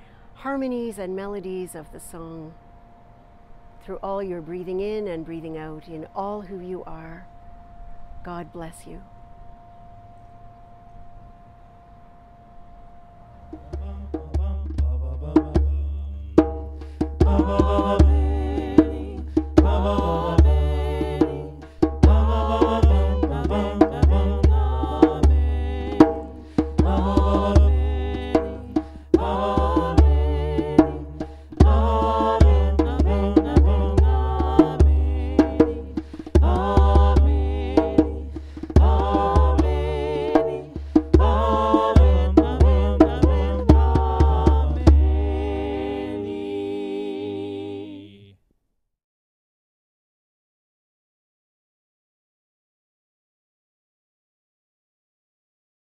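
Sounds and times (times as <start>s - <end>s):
chords over deep bass: 13.3s - 45.8s.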